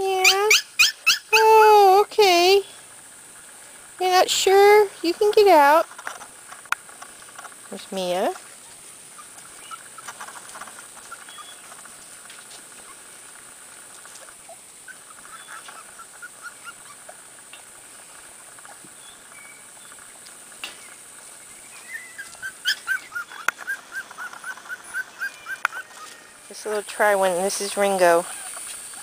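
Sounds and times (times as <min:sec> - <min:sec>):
puppy yipping: 0:00.2 - 0:01.4, 0:09.2 - 0:10.1, 0:14.5 - 0:17.2, 0:21.8 - 0:26.3.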